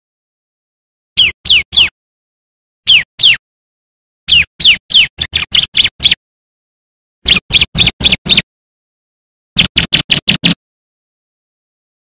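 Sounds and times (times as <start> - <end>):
bird singing high chirps: 1.2 - 2.0, 2.8 - 3.4, 4.3 - 6.2, 7.2 - 8.5, 9.6 - 10.6.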